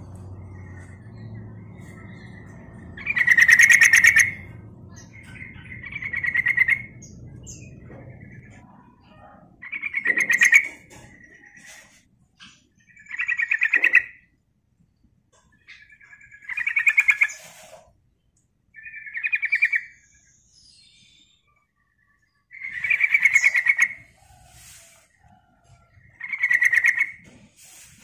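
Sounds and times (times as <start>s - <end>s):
bulbul chattering: 0.0s - 11.8s.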